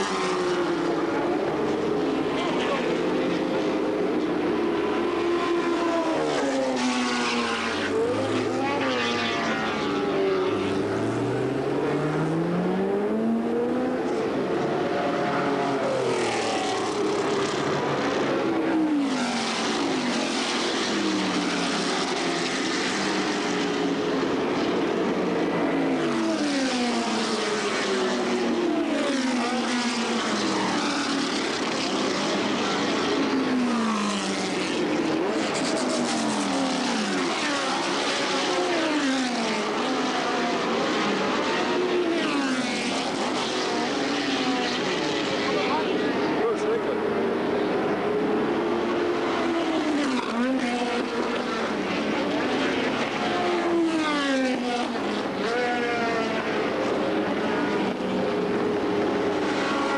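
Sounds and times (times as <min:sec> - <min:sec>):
racing cars passing at speed: 0:00.0 - 0:59.9.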